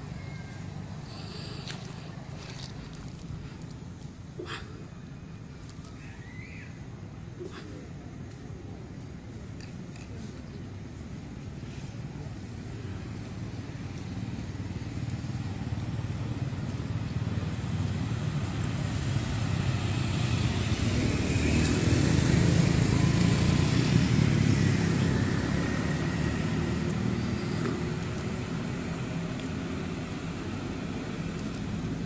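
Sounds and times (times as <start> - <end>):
vehicle passing on road: 0.0 - 4.6, 12.4 - 32.0.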